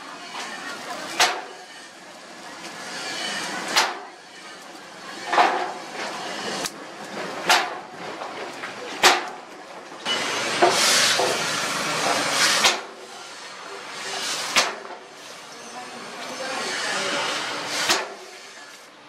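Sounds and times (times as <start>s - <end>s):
hot steel hissing in water: 0.0s - 7.7s, 10.0s - 19.0s
sharp knocks and crackles: 3.4s - 4.1s, 5.2s - 9.9s.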